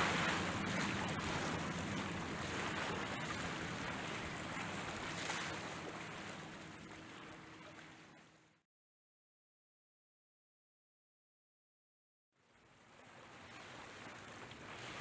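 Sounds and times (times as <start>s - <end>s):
wind on microphone: 0.0s - 6.3s
choppy sea water: 0.0s - 8.6s, 12.4s - 15.0s.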